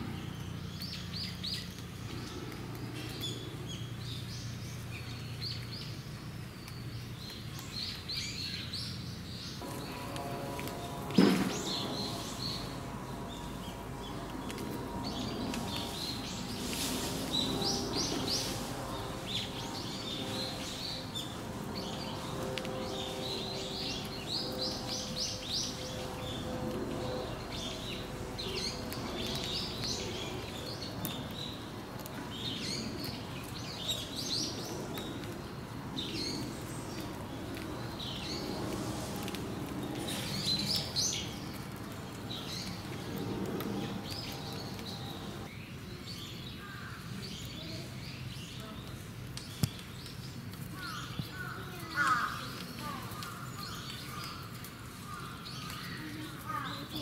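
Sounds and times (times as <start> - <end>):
low steady hum: 0.0 - 40.0
small birds chirping: 0.0 - 57.0.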